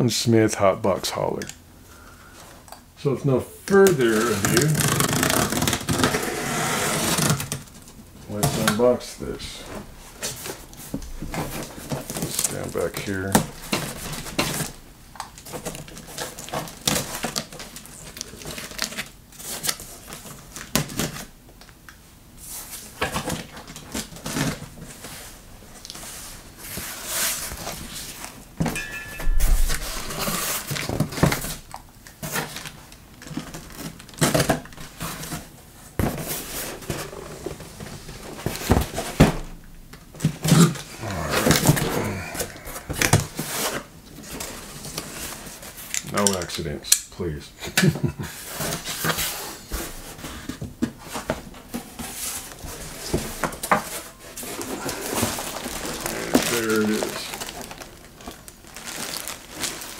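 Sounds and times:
cardboard box rustling and scraping: 29.4 - 31.6, 48.4 - 57.8.

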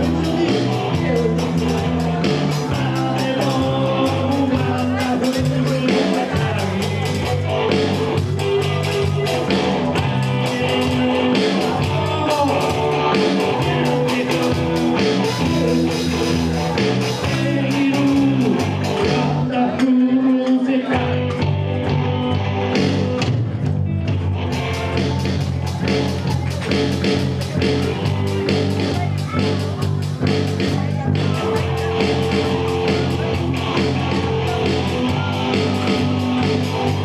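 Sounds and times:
person singing: 0.0 - 23.3
bass line: 0.0 - 37.0
live rock band playing: 0.0 - 37.0.

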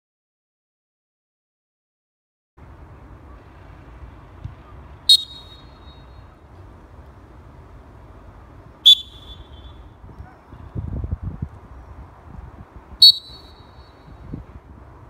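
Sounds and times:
referee whistle blasts: 5.1 - 6.2, 8.8 - 9.8, 13.0 - 14.0.

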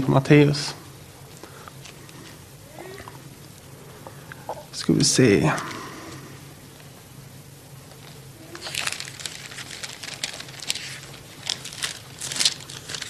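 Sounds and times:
pages flicking and rustling: 8.0 - 13.0.

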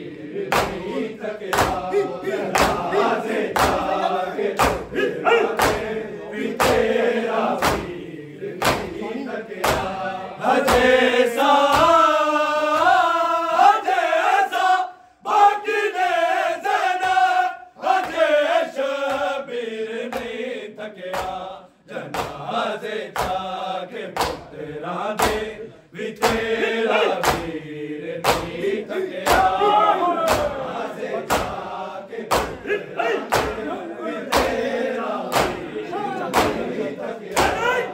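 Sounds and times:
men chanting a lament: 0.0 - 37.9
men beating their chests: 0.4 - 13.1, 21.1 - 24.6, 25.2 - 25.6, 26.2 - 37.9.

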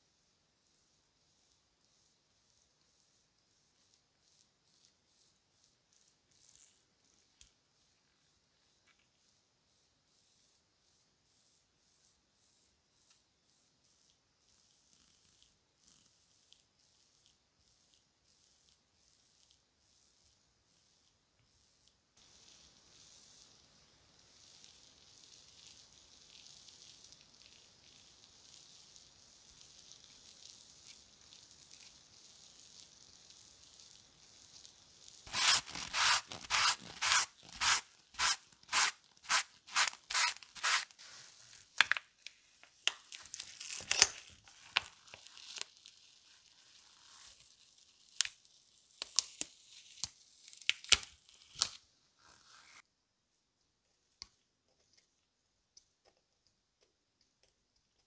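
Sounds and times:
plastic foil peeling crinkle: 33.8 - 51.8
tissue rubbing on metal: 35.3 - 41.7.

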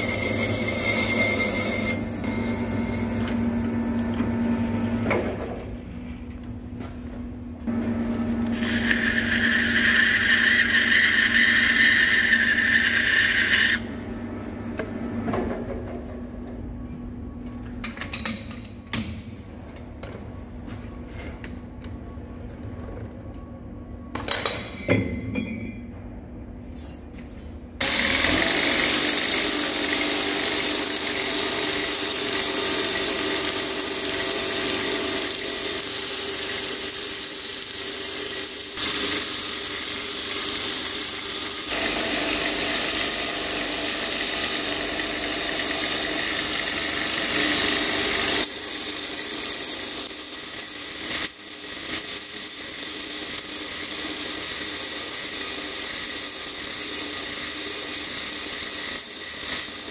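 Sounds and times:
belt grinder grinding steel: 0.0 - 3.3, 8.4 - 13.9, 27.8 - 59.9
lathe whining: 7.7 - 13.9, 40.6 - 50.0.

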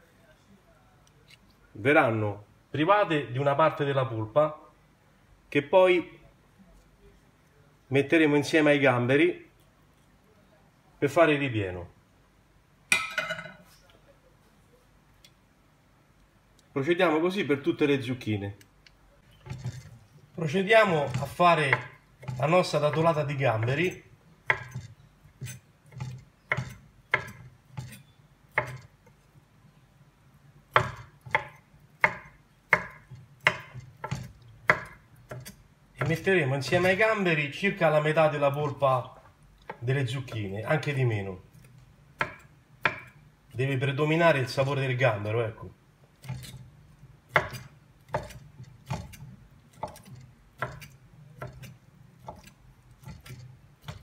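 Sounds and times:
knife chopping on wooden board: 21.0 - 28.9, 30.7 - 37.0, 42.2 - 43.2, 47.3 - 54.0.

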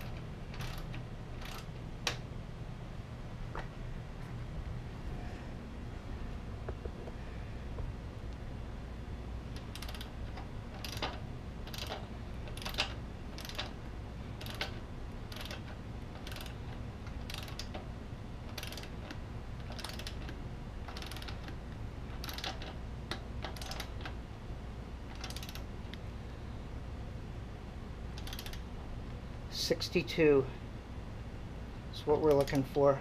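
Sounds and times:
ratchet wrench clicking: 0.6 - 1.7, 9.6 - 13.8, 14.4 - 16.6, 17.2 - 17.8, 18.5 - 21.6, 22.2 - 22.8, 23.4 - 23.9, 25.1 - 25.6, 28.2 - 28.6.

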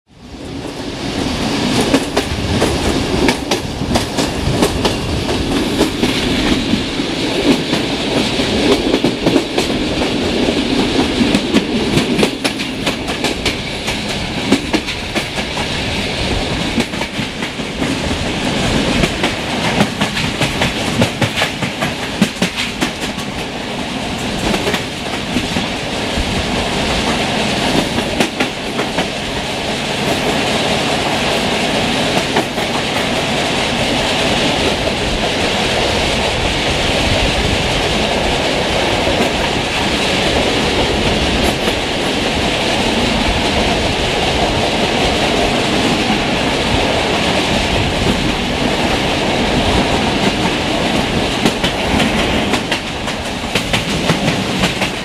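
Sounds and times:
rushing rail noise: 0.1 - 55.0
train wheels clattering over rail joints: 1.6 - 33.4, 37.1 - 55.0.

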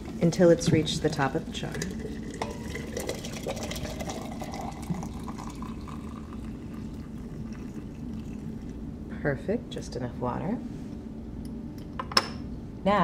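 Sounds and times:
water pouring into glass jar: 1.6 - 8.8.

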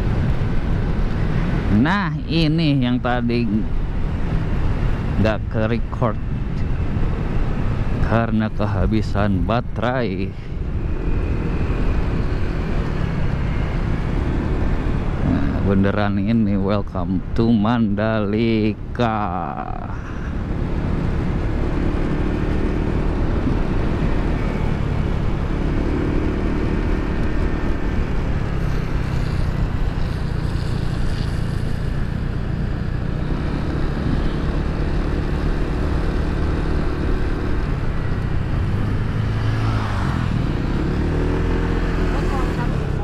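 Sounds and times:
wind rushing over microphone: 0.0 - 43.0
motorcycle engine running: 18.4 - 43.0.

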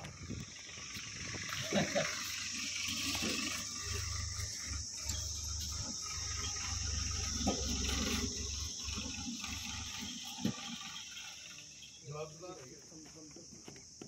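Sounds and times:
insects chirring: 0.0 - 14.0.

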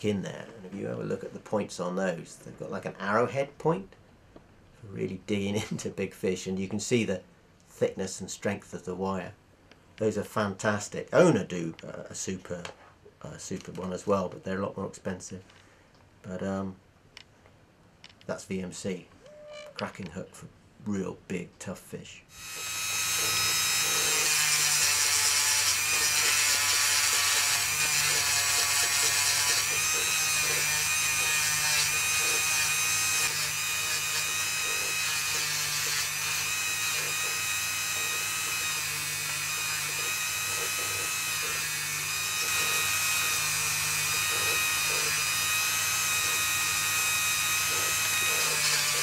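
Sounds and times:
rotary tool sanding wood: 22.4 - 49.0.

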